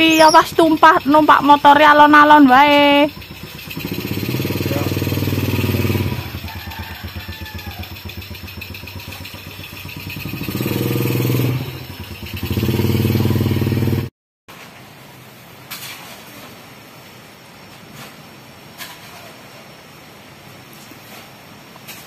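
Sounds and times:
motorcycle engine idling and revving: 0.0s - 14.1s.

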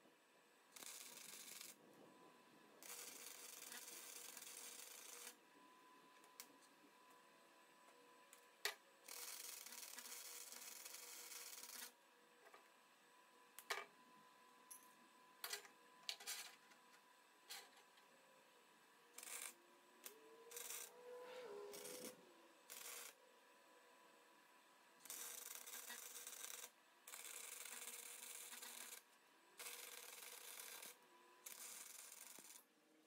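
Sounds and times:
welder arc crackling and hissing: 0.8s - 1.8s, 2.8s - 5.4s, 19.2s - 23.2s, 25.0s - 29.0s.

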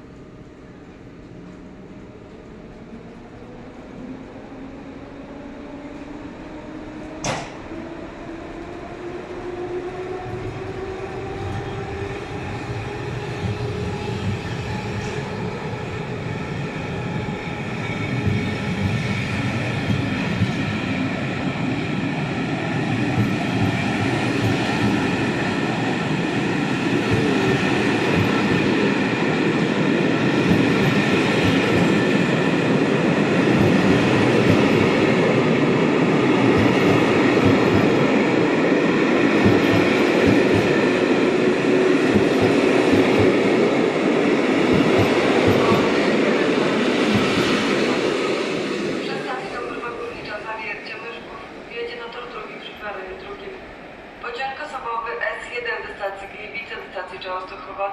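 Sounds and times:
train wheels rumbling and clattering: 7.0s - 7.8s, 10.2s - 49.0s.

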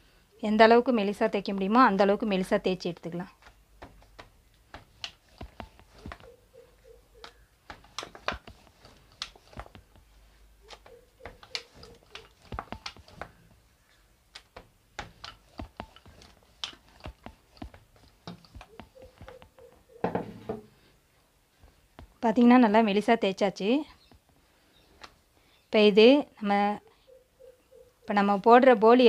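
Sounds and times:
dough sheet scuffing: 3.4s - 6.4s, 7.6s - 13.5s.

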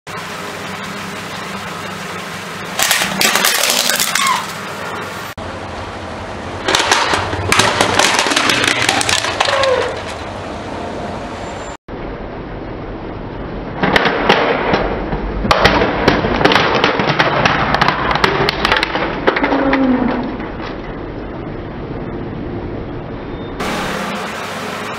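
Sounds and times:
plastic toy cracking under tyre: 2.8s - 4.4s, 6.7s - 10.2s, 15.5s - 20.3s.

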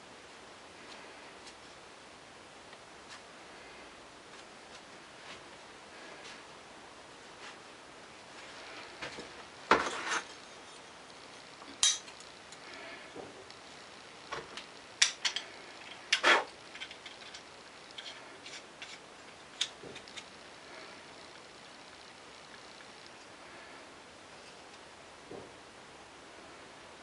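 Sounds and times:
metal parts clinking and scraping: 15.0s - 20.3s.

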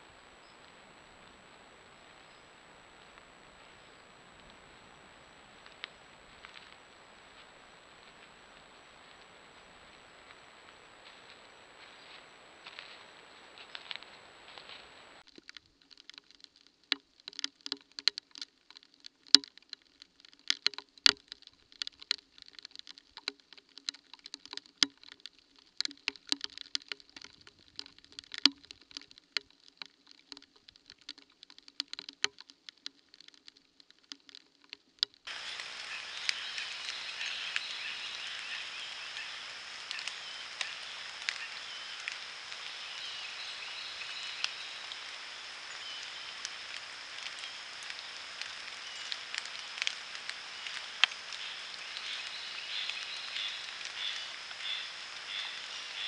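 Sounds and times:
faint low hum: 0.0s - 15.2s
steady hiss: 0.0s - 15.2s, 35.3s - 56.0s
pattering taps and clicks: 15.2s - 35.4s.

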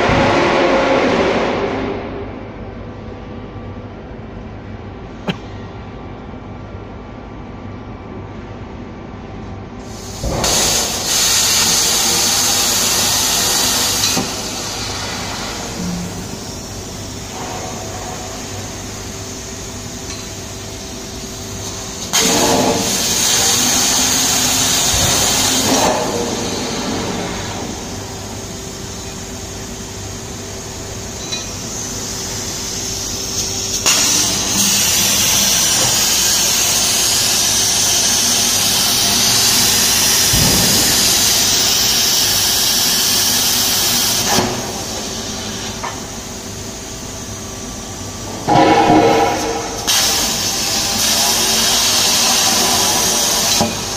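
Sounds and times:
steady machine hum: 0.0s - 53.9s
plasma torch hissing: 9.8s - 19.6s, 21.2s - 29.9s, 31.0s - 46.3s, 48.5s - 53.9s.

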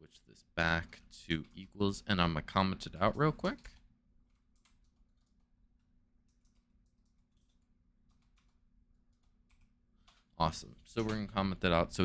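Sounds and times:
computer keyboard clicks: 3.4s - 5.5s, 6.3s - 10.3s, 11.0s - 11.4s.

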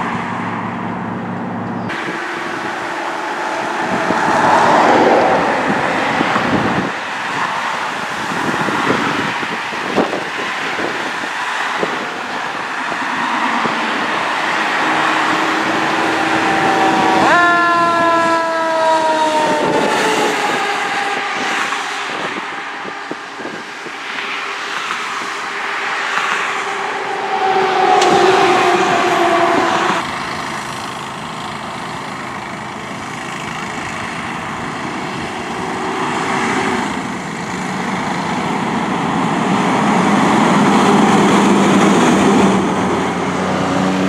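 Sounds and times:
horn sliding in pitch: 1.8s - 7.7s, 13.0s - 23.6s, 26.6s - 30.1s
emergency vehicle passing: 1.9s - 31.7s.

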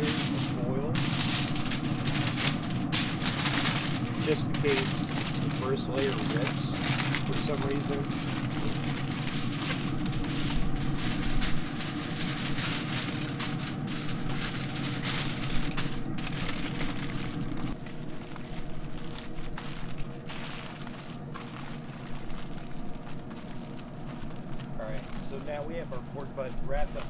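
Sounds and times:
aluminium foil crinkling: 0.0s - 27.0s
steady low hum: 0.0s - 27.0s.

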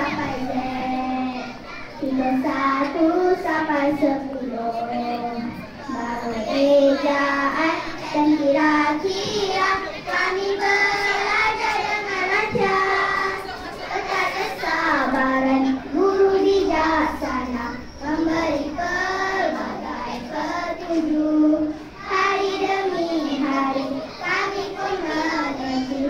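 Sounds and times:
children singing in unison: 0.0s - 26.0s.

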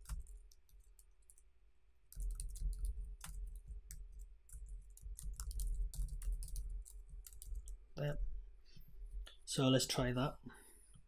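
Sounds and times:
typing on computer keyboard: 0.0s - 1.4s, 2.1s - 7.8s.

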